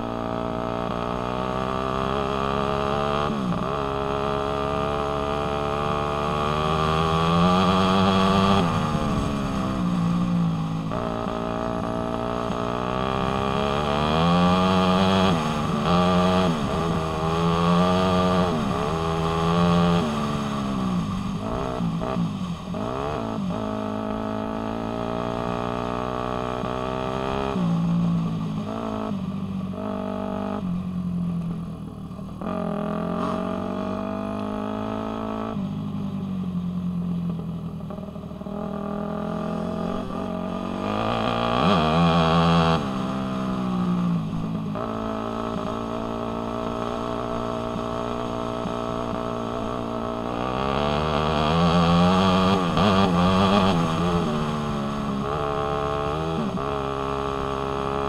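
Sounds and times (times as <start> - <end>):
dirt bike engine revving: 32.4 - 35.5, 38.6 - 43.5, 44.7 - 58.0.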